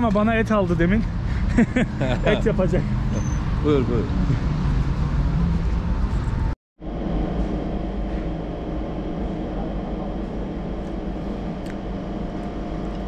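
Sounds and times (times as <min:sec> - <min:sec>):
steady mechanical hum: 0:05.8 - 0:13.0.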